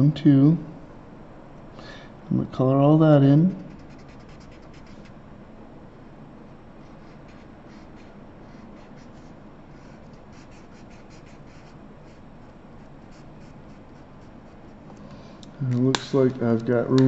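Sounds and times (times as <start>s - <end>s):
marker scratching on paper: 3.6s - 5.1s, 6.8s - 12.2s, 12.8s - 14.8s.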